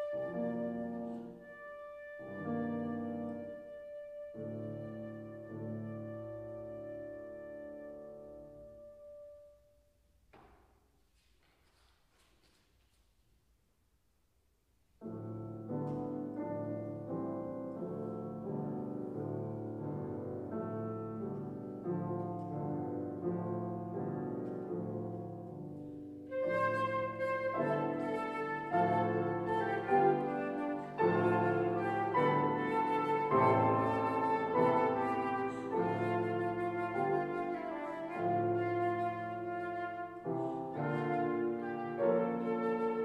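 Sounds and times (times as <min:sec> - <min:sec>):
flute melody: 0:00.0 - 0:09.8, 0:26.3 - 0:43.0
grand piano chords: 0:00.0 - 0:10.7, 0:15.0 - 0:43.0.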